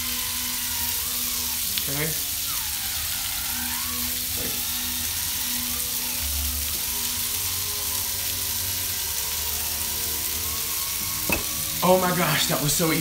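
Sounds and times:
electric corkscrew humming: 0.0s - 12.2s
vegetables sizzling in a pan: 0.0s - 13.0s.

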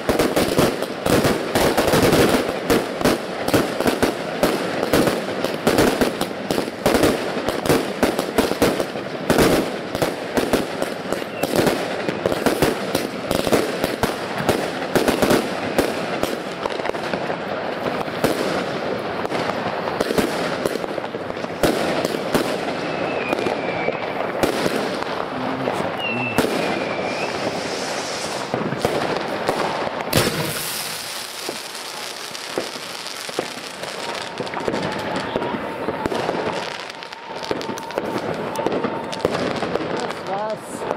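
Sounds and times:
fireworks bangs and crackling: 0.0s - 40.9s
firework whistles: 11.0s - 12.4s, 22.5s - 25.0s, 25.6s - 39.6s.

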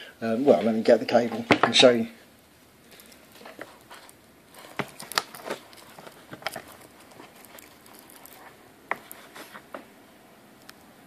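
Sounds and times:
cable handling clicks and rustles: 2.9s - 9.9s.

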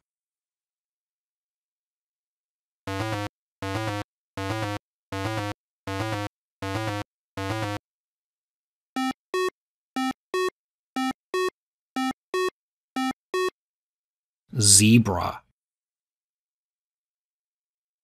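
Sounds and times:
low buzzy synth footsteps: 2.9s - 7.8s
pitched blips in clip-clop rhythm: 2.9s - 7.8s, 9.0s - 13.6s.

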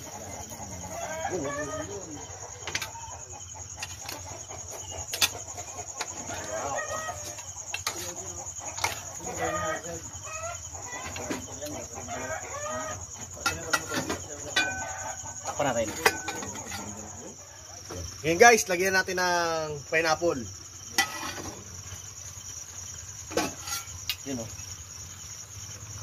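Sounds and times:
chickens clucking: 0.0s - 18.4s.

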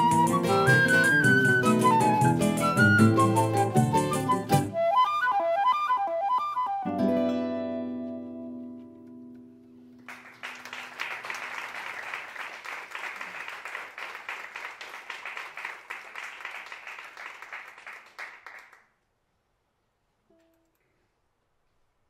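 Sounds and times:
audience applauding: 10.0s - 18.9s.

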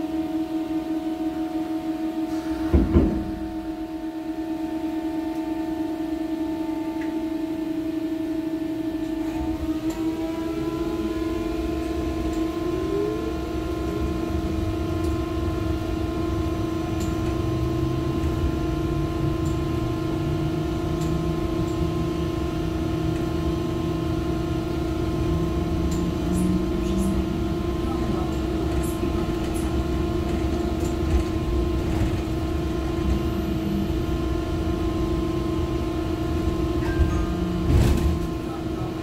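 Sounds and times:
blower droning hum: 0.0s - 39.0s
traction motor whine rising: 7.8s - 38.9s
road rumble: 11.4s - 39.0s.

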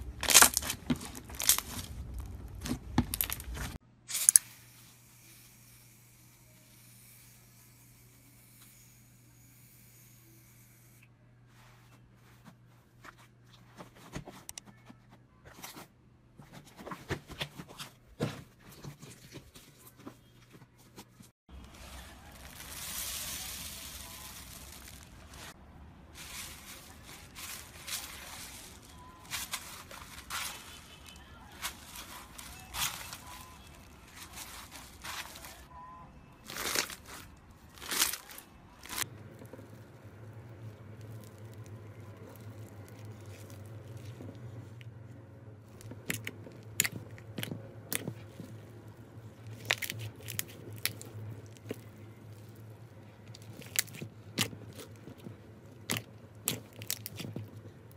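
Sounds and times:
foam beads crackling: 0.0s - 5.0s, 21.5s - 35.7s, 36.4s - 44.8s, 45.6s - 57.9s
slime squishing: 36.5s - 45.0s, 45.6s - 57.9s.

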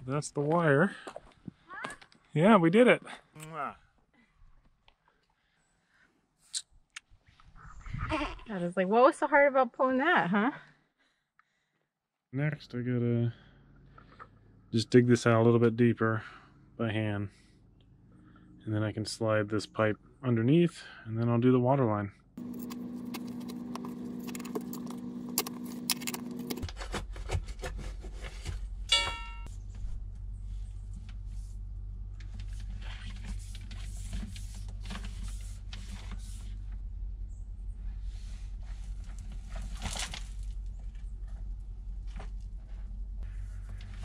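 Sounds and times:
steady low hum: 22.4s - 26.7s, 28.6s - 44.0s
shovel scraping dirt: 22.4s - 28.2s
pipe and cable being moved: 22.4s - 29.3s, 32.2s - 36.7s, 38.6s - 44.0s.

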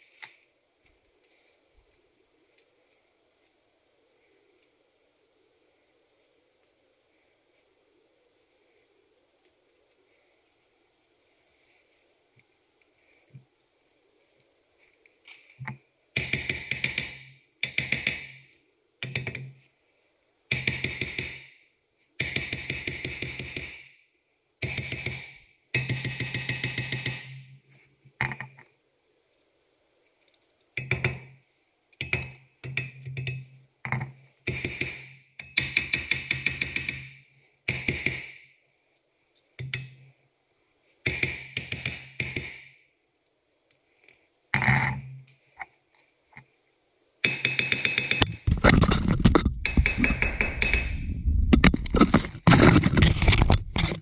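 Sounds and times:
impact wrench hammering: 34.5s - 38.4s, 41.1s - 42.7s, 47.2s - 51.1s.

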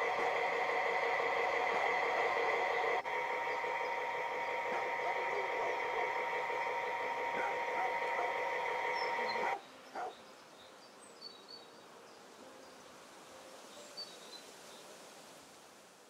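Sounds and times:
diesel locomotive engine running: 0.0s - 9.6s
faint background hiss: 9.6s - 16.0s.

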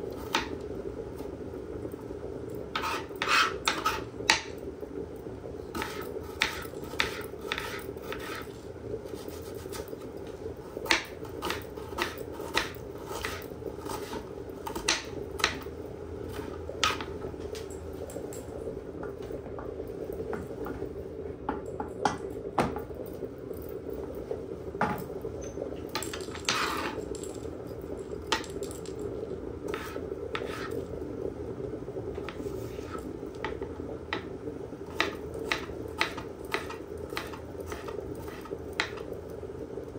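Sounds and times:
steady low hum: 0.0s - 39.9s
knife scrape: 2.8s - 4.0s, 5.8s - 8.5s, 13.1s - 14.2s, 26.5s - 27.0s, 29.7s - 30.8s.

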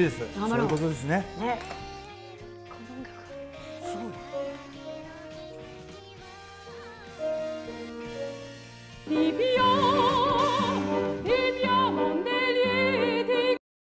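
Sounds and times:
woman singing opera: 9.1s - 13.6s.

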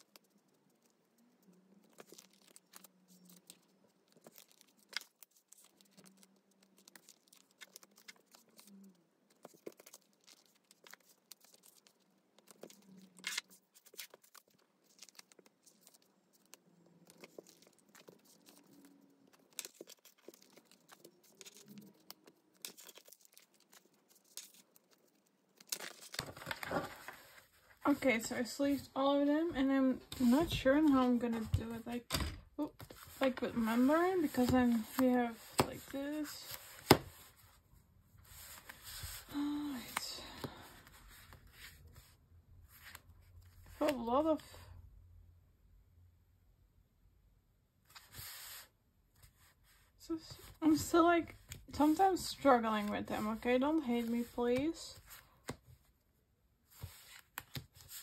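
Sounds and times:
plastic sleeves crinkling: 0.0s - 28.8s.

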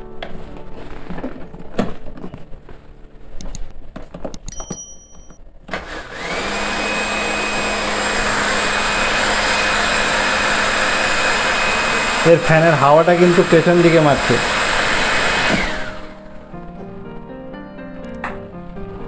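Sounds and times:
fan motor whining: 5.7s - 16.4s.

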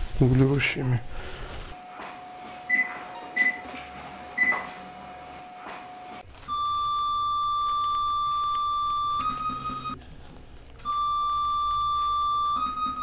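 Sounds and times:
short beeps: 10.8s - 13.0s.

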